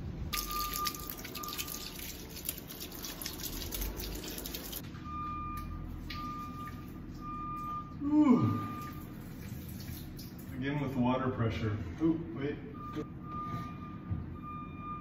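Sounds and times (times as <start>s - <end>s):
water pouring from a hose: 0.4s - 4.8s, 8.8s - 10.6s
water splashing onto clothes: 0.4s - 4.8s, 8.8s - 10.6s.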